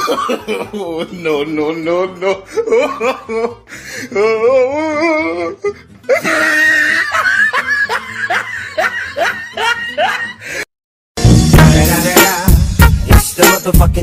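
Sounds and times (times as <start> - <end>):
loud laughter: 0.0 - 1.1, 2.4 - 3.6, 6.1 - 10.4.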